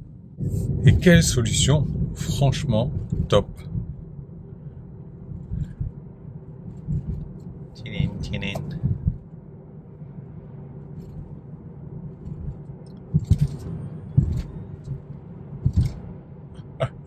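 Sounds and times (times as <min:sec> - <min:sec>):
road and tyre rumble: 0:00.0 - 0:17.0
short thumps: 0:12.3 - 0:16.1.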